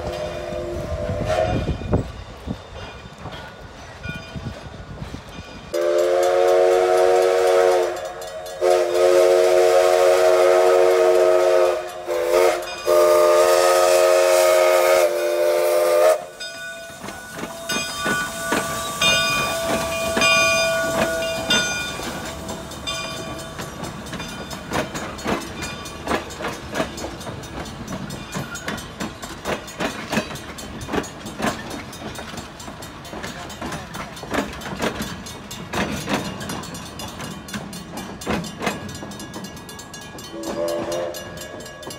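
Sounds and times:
chime steam whistle blasts: 0:00.0 - 0:02.1, 0:05.7 - 0:24.4, 0:40.2 - 0:41.9
train wheels clicking: 0:00.0 - 0:41.9.

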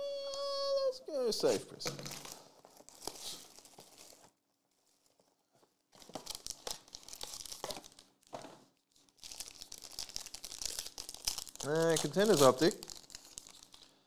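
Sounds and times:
foil card pack crinkling: 0:01.4 - 0:14.0.

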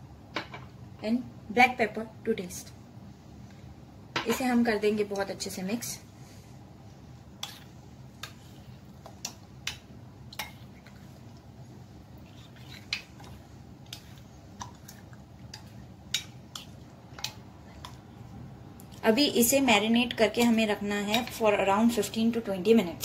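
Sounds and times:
spoon scraping ceramic bowl: 0:12.2 - 0:14.2.

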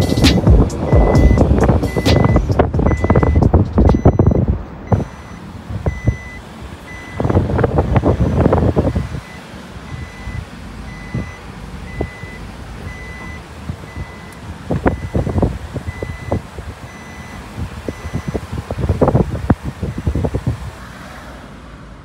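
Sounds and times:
reversing alarm beeping: 0:00.0 - 0:07.4, 0:08.8 - 0:18.4.

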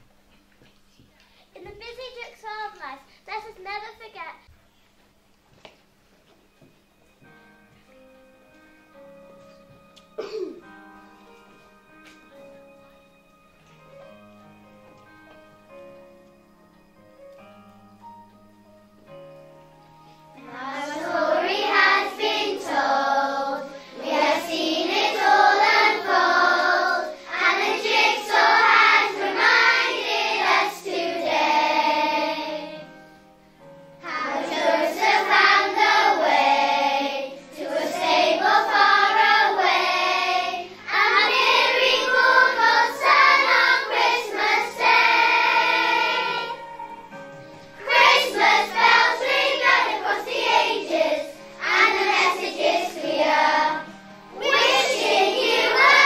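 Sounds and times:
children singing together: 0:20.4 - 0:33.0, 0:34.0 - 0:56.0.

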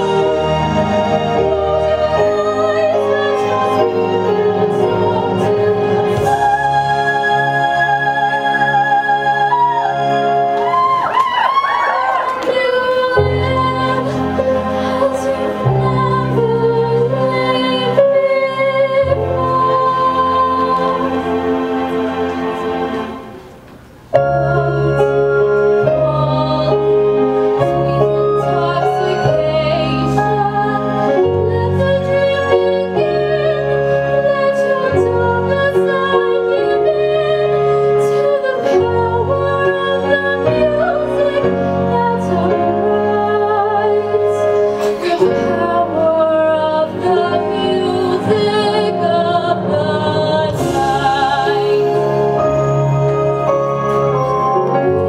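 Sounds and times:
woman singing with vibrato: 0:00.0 - 0:23.4, 0:24.2 - 0:53.5
held low instrumental notes: 0:43.9 - 0:55.0.

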